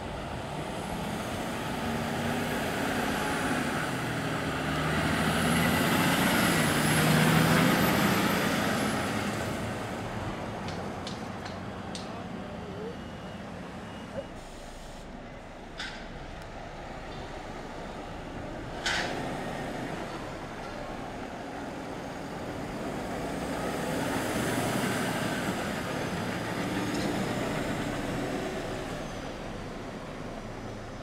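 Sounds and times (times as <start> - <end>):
dump truck driving past: 0.0 - 31.0.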